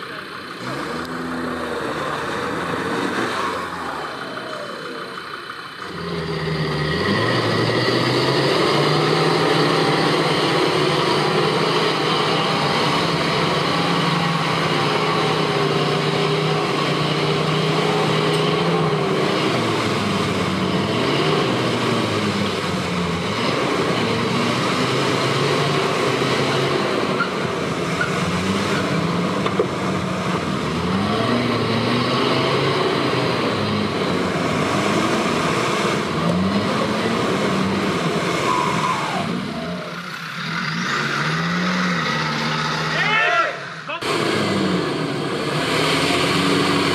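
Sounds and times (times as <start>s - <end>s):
off-road vehicle engine under load: 0.0s - 46.9s.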